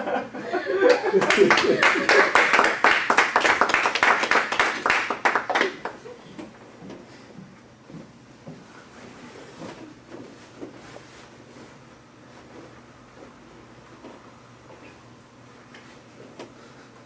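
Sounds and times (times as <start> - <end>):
small group clapping: 0.8 - 6.1.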